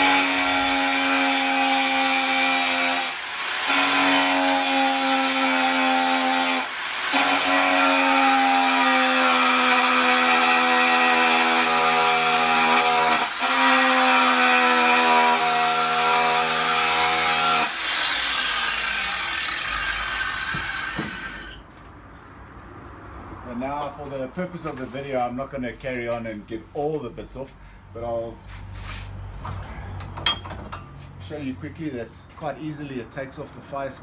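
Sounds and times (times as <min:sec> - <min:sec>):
angle grinder grinding steel: 0:00.0 - 0:21.6.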